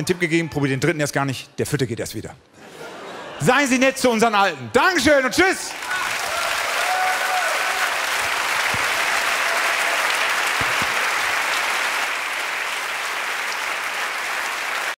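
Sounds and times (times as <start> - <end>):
audience applauding: 5.7 - 15.0.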